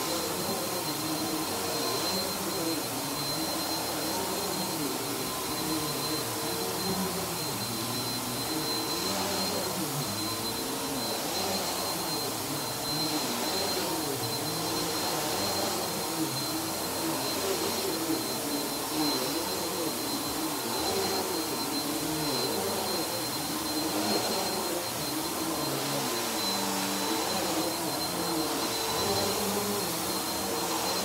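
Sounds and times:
vacuum cleaner whining: 0:00.0 - 0:31.0.

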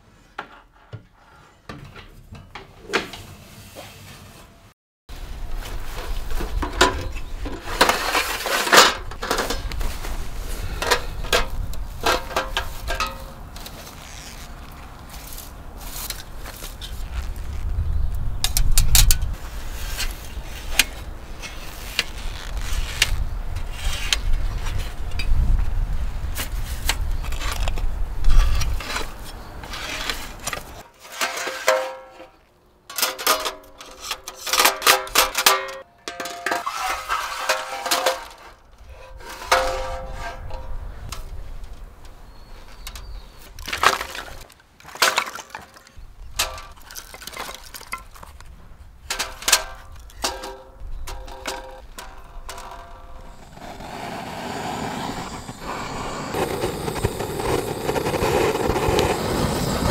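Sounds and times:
metal panels clinking: 0:32.9 - 0:41.3.

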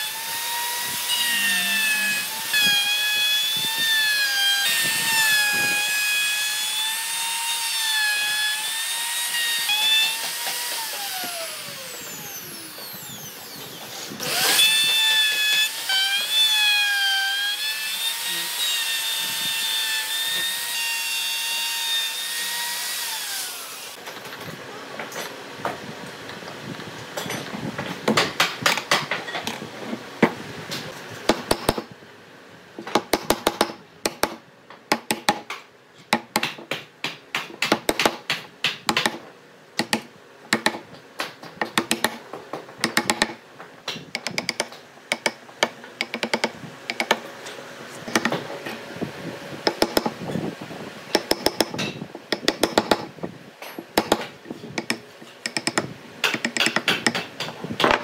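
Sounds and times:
tools tapping and clicking: 0:39.8 - 0:47.2, 0:49.7 - 0:50.1, 0:51.2 - 0:58.0.

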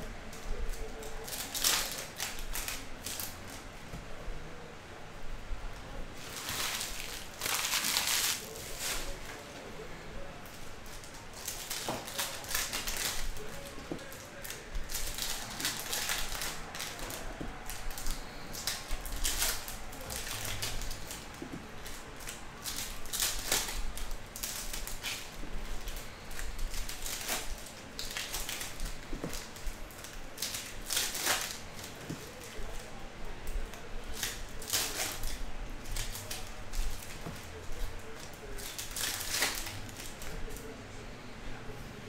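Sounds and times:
foil wrappers tearing and crinkling: 0:00.4 - 0:03.6, 0:06.2 - 0:09.5, 0:10.4 - 0:33.0, 0:33.6 - 0:40.7.

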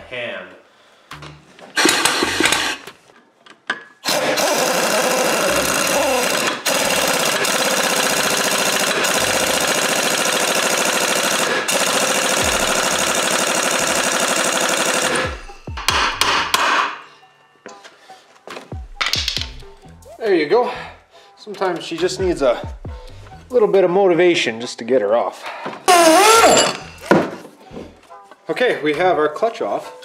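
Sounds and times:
impact wrench hammering: 0:01.7 - 0:02.9, 0:04.0 - 0:17.0, 0:19.0 - 0:19.6.

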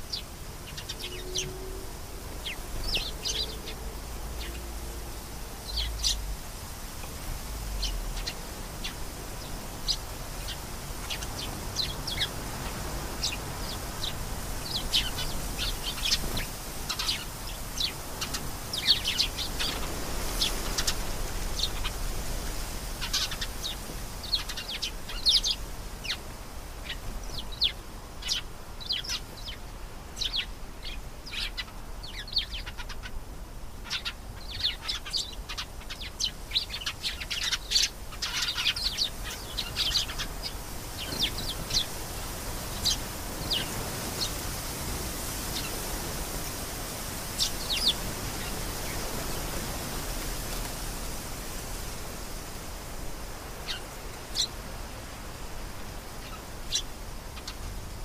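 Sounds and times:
canary singing: 0:00.1 - 0:04.7.

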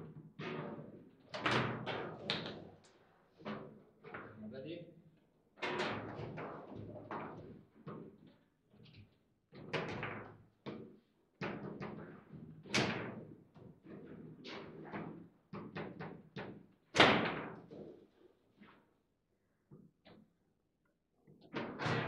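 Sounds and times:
foosball knocks and clacks: 0:01.4 - 0:02.8.

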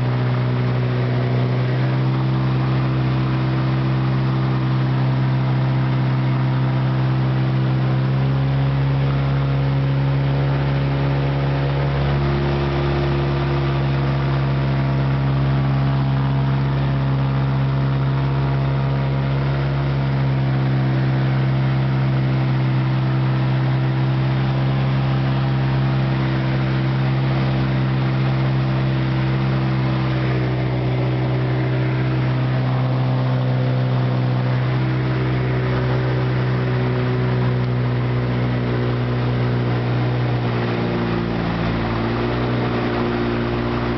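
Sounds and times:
light aircraft engine droning: 0:13.1 - 0:43.9.

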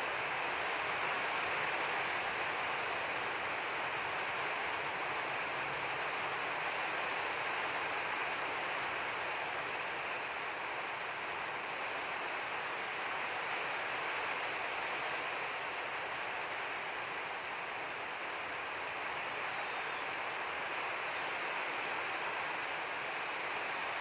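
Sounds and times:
steady rain hiss: 0:00.0 - 0:24.0.

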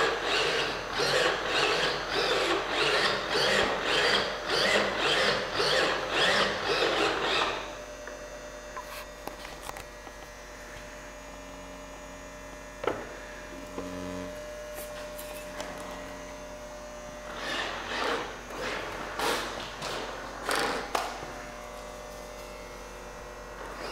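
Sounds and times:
electrical mains hum: 0:00.0 - 0:23.9
brief low tone: 0:13.6 - 0:14.7.

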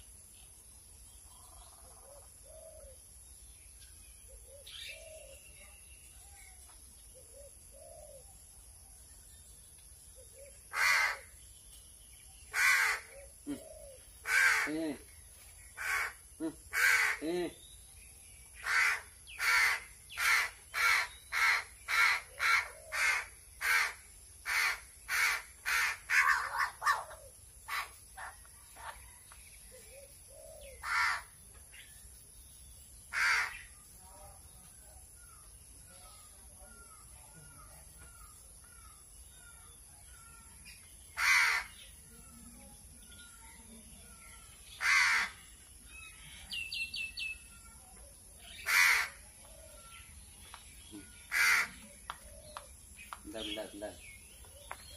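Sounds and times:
crow cawing: 0:10.7 - 0:11.3, 0:12.5 - 0:13.6, 0:14.2 - 0:14.9, 0:15.8 - 0:17.3, 0:18.6 - 0:27.0, 0:30.8 - 0:31.3, 0:33.1 - 0:33.6, 0:41.2 - 0:41.8, 0:44.8 - 0:45.5, 0:48.6 - 0:49.2, 0:51.1 - 0:51.8
small bird chirping: 0:26.3 - 0:48.7.

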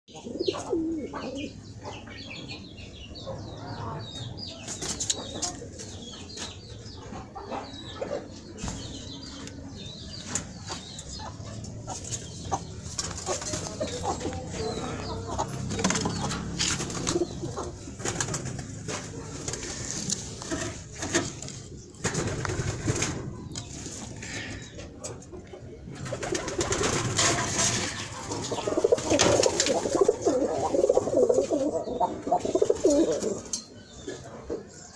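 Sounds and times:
doves cooing: 0:00.1 - 0:01.8, 0:11.3 - 0:34.3.

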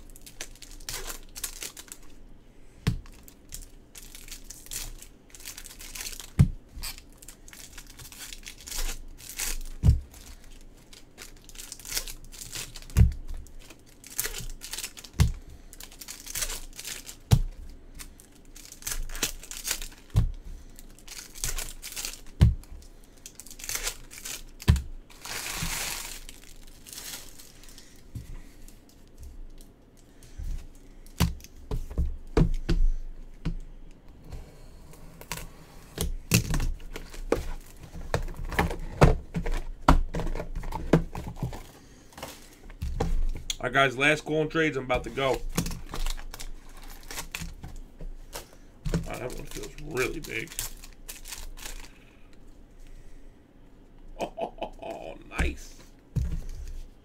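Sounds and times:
foil wrappers crinkling: 0:00.0 - 0:02.2, 0:03.0 - 0:30.2, 0:43.8 - 0:52.2
foil ripping: 0:03.5 - 0:17.4, 0:18.4 - 0:22.4, 0:23.2 - 0:27.9, 0:49.0 - 0:52.0.

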